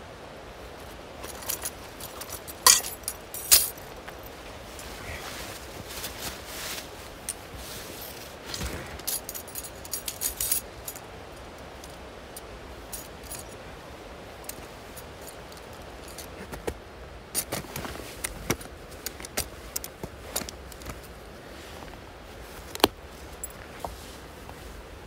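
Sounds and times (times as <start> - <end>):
crampons clinking and jangling: 0.8 - 4.4, 7.2 - 13.6, 14.4 - 21.2, 22.7 - 23.6.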